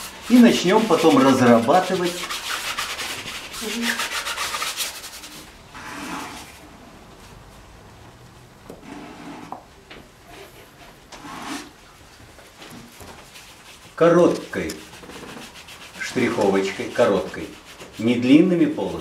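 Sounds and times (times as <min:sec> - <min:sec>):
palette knife scraping canvas: 0:00.0 - 0:06.6, 0:08.8 - 0:09.6, 0:11.2 - 0:11.8, 0:13.3 - 0:19.0.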